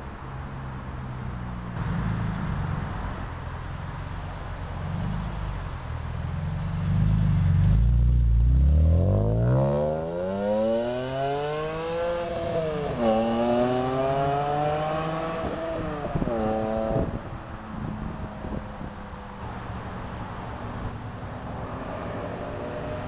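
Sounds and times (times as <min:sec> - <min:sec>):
car engine accelerating hard: 0:04.0 - 0:17.3.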